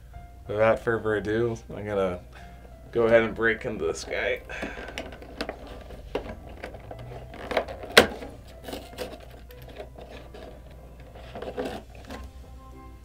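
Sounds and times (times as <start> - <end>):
cardboard tearing and clicking: 4.5 - 12.3.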